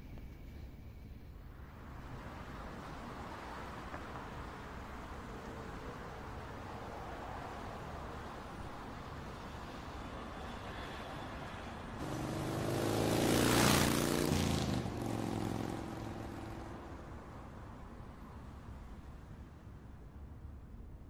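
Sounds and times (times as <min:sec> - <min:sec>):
motorcycle engine passing: 0:12.0 - 0:17.0.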